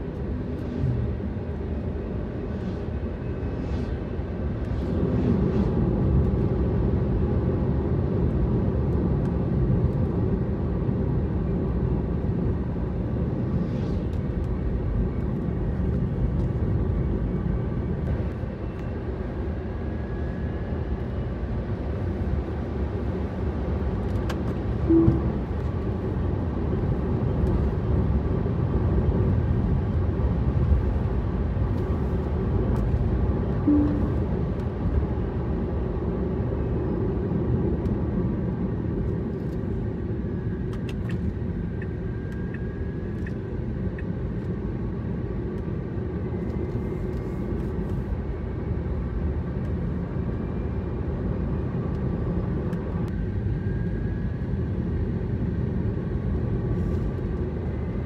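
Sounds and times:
car tyres and engine rumble: 0.0 - 58.0
short tones: 24.9 - 25.5, 33.7 - 34.3.

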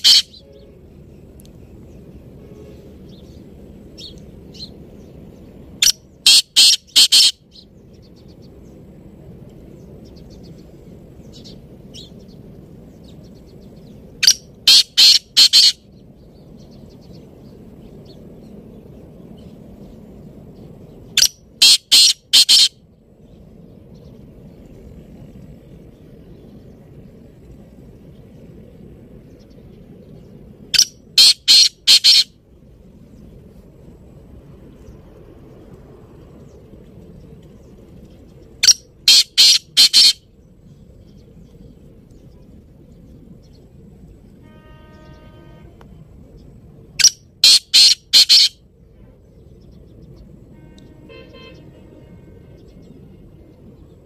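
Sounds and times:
francolin calling harsh notes: 0.0 - 0.4, 6.3 - 7.3, 14.2 - 15.8, 21.6 - 22.7, 30.8 - 32.3, 38.6 - 40.2, 47.0 - 48.6.

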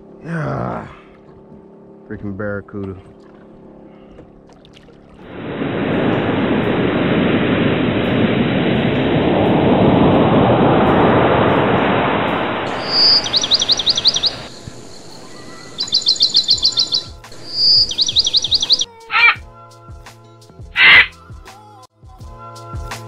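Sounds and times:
loud rushing noise: 5.2 - 18.8
bird chirping: 12.7 - 19.4, 20.8 - 21.1.

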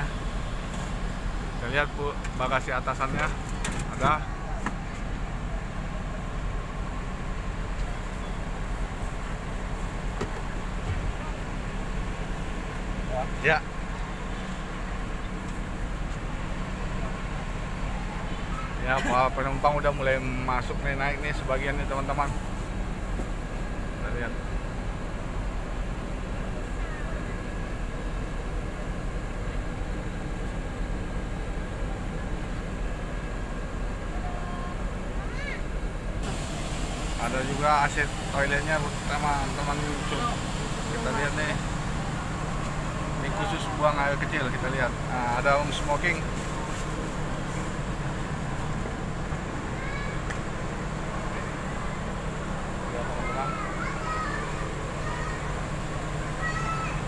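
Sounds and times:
idling engine and air conditioning: 0.0 - 57.0.

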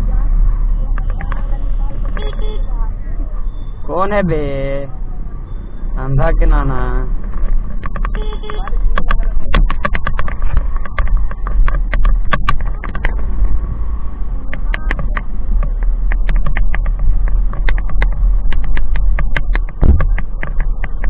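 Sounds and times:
motorcycle engine rumble: 0.0 - 21.0
sharp clicks and knocks: 0.9 - 2.6, 7.2 - 13.4, 14.4 - 21.0.

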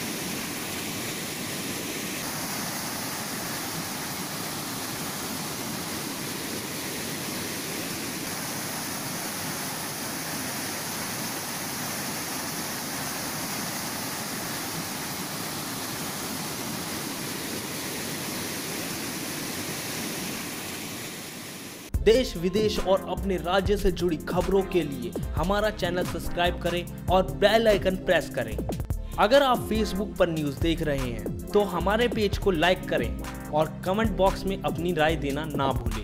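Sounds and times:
floodwater rushing over rocks: 0.0 - 21.9.

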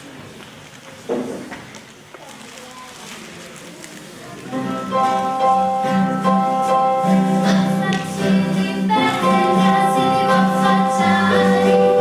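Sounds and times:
acoustic guitar: 4.5 - 12.0
children singing: 5.8 - 12.0.

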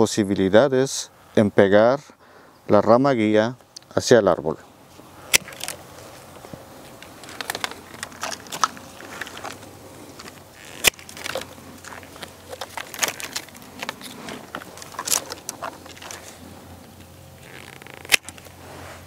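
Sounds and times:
stems rustling: 4.5 - 19.0
pruning shears snipping: 5.2 - 18.6.

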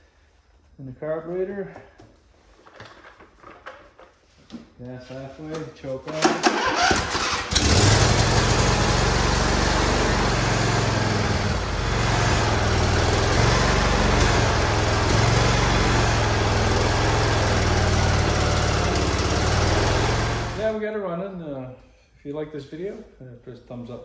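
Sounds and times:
lawn tractor engine starting and running: 6.1 - 20.7.

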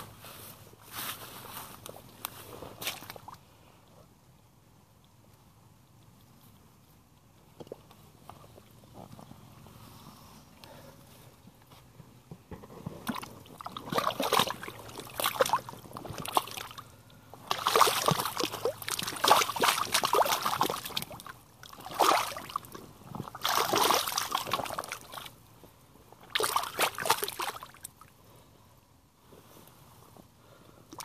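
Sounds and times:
rubber boots splashing through mud: 2.8 - 3.4, 13.0 - 16.8, 17.4 - 25.3, 26.2 - 27.9.

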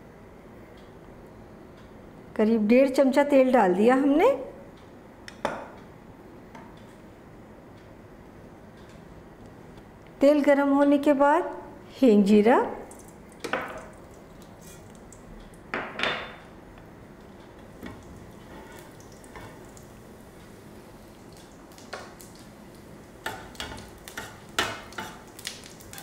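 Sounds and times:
seeds sizzling in hot oil: 17.7 - 26.0.

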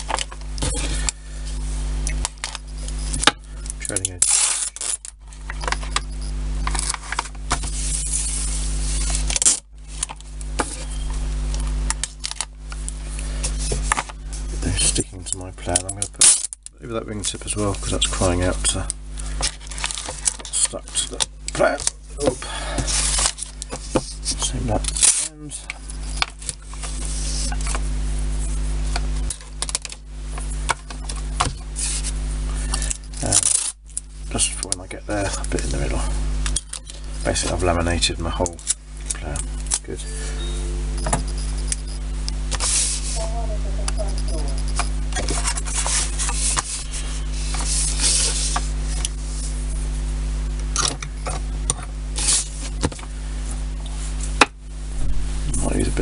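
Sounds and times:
steady low hum: 0.0 - 56.0
hands rubbing tape on paper: 7.6 - 9.3, 26.8 - 27.6, 31.7 - 33.7, 42.5 - 43.4, 45.4 - 49.6
plastic film rustling: 19.2 - 21.1.

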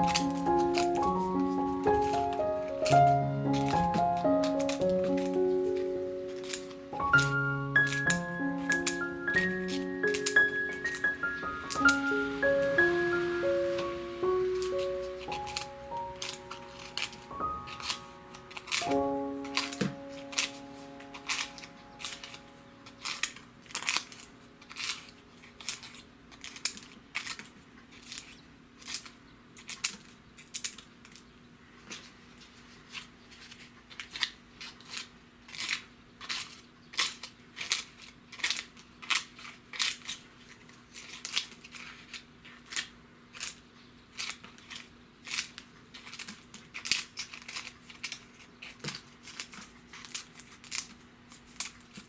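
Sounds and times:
scissors snipping leaves: 0.0 - 31.2.

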